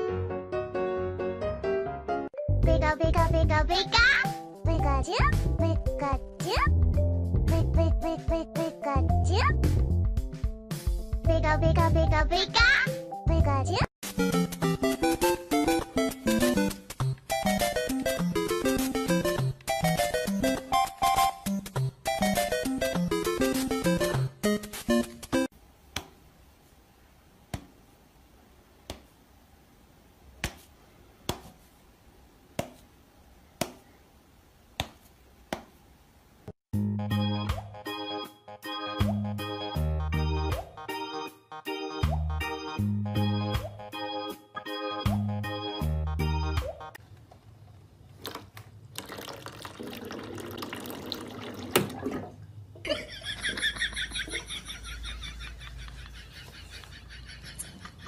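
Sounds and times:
cat swatting hand smacks: 30.4 - 30.7, 31.3 - 31.6, 34.8 - 35.7
water running from tap: 49.0 - 52.4.

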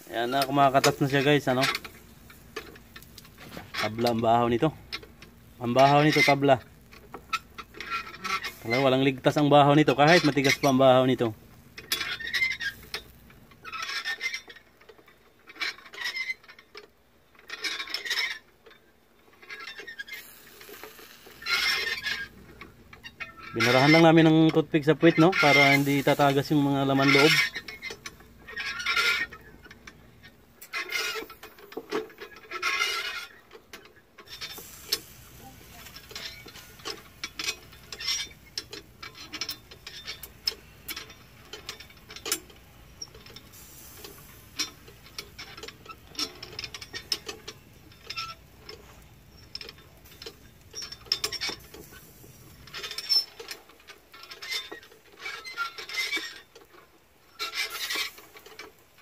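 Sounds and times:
metal rotisserie rod clicking: 30.6 - 59.0.

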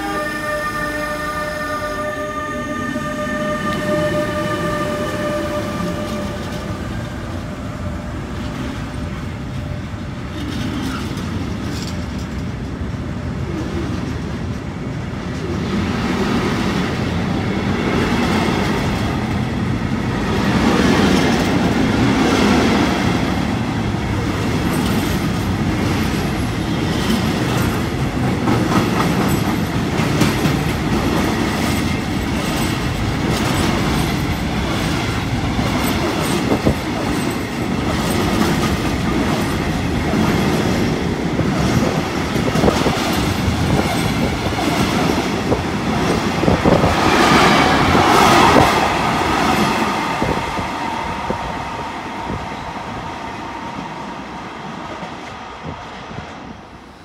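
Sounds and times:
locomotive steady tones: 0.0 - 15.6
train wheels rumbling on rails: 0.0 - 57.0.

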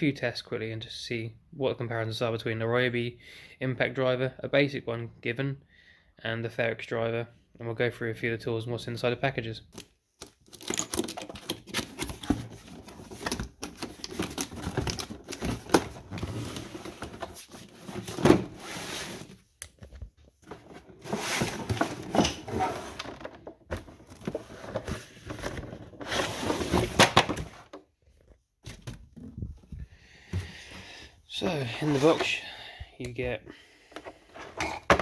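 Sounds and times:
cardboard packaging rustling: 9.8 - 27.7.

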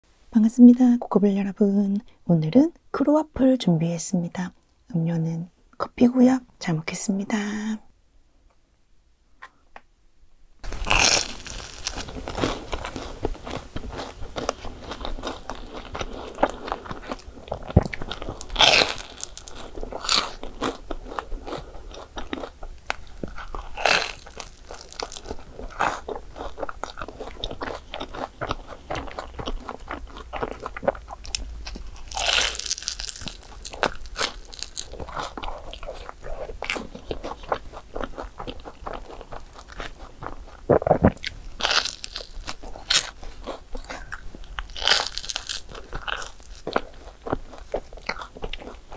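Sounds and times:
chewing: 10.6 - 48.9
crunching bites of crisp pastry: 10.6 - 48.9.

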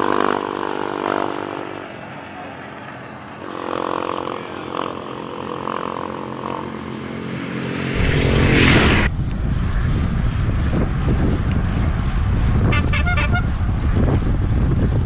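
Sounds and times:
brief rushing noise: 7.2 - 12.8
wind buffeting microphone: 7.3 - 15.0.

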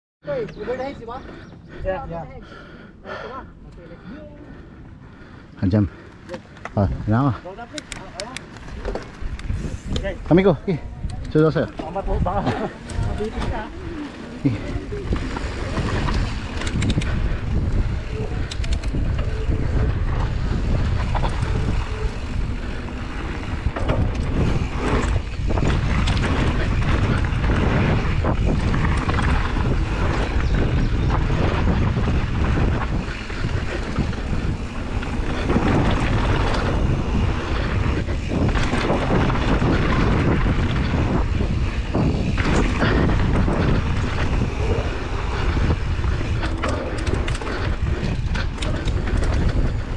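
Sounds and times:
tyres rumbling on dirt: 5.6 - 49.9
wind noise on microphone: 6.7 - 49.9
bike knocks and rattles: 18.7 - 49.9.

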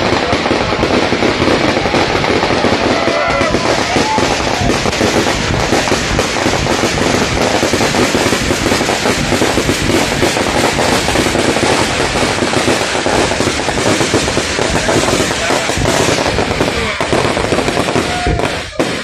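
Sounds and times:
fireworks bangs and crackles: 0.0 - 19.0.

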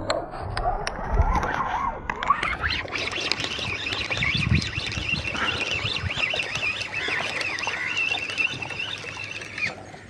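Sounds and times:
birds chirping and chattering: 2.4 - 10.0.

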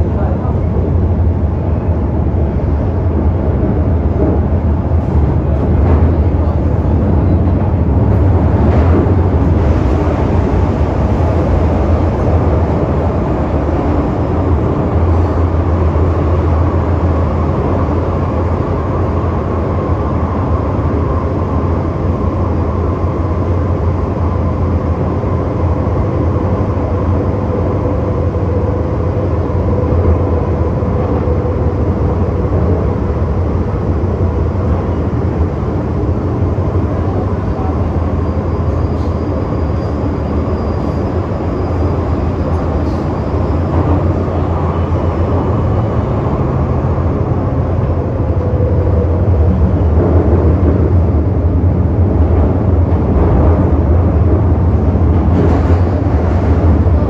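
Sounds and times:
train wheels rumbling: 0.0 - 57.0.

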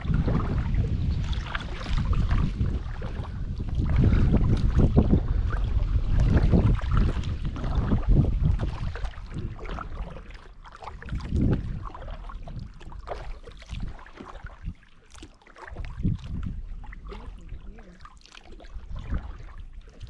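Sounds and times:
paddle splashes: 0.0 - 20.0
water slapping a hull: 0.0 - 20.0
wind rumbling on microphone: 0.0 - 20.0.

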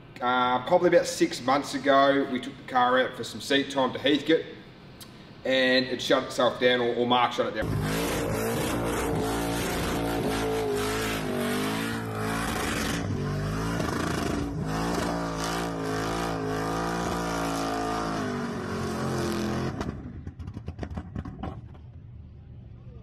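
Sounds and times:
spinning tyres hissing: 7.6 - 18.3
car engine at high revs: 7.6 - 20.7.

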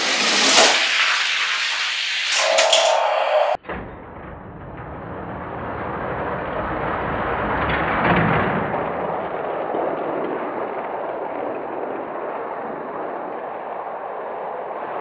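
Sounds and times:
toy cars rolling down plastic track: 0.0 - 3.0.

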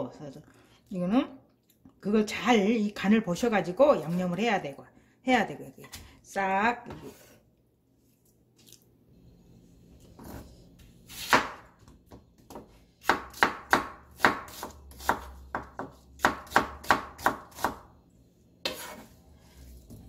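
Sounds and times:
knife chopping on cutting board: 11.1 - 17.9, 18.6 - 19.1.

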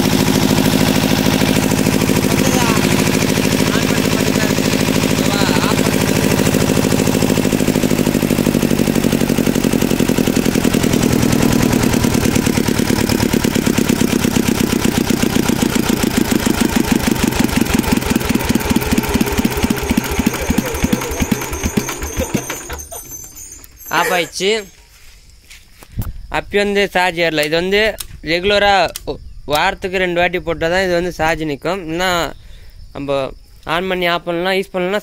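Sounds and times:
diesel generator running down: 0.0 - 24.7.

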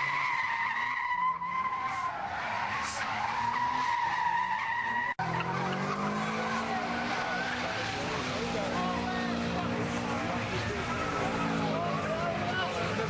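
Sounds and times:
car tyres squealing: 0.0 - 13.0
car engine revving: 4.7 - 13.0.

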